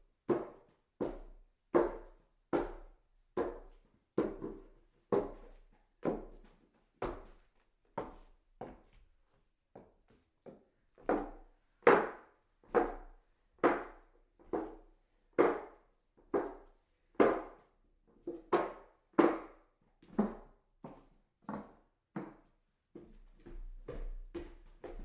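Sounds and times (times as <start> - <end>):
footsteps on hollow wooden stairs: 22.9 - 25.0.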